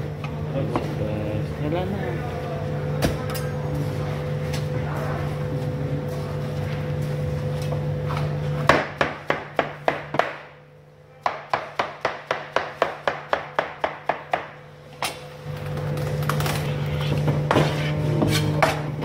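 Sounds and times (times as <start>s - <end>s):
steady low hum: 0.0s - 19.0s
knife chopping on plastic board: 8.6s - 10.5s, 11.3s - 14.6s.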